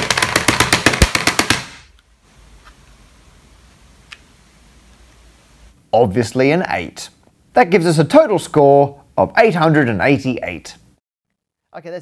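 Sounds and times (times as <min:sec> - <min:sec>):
plastic calculator banging on surface: 0:00.0 - 0:01.8.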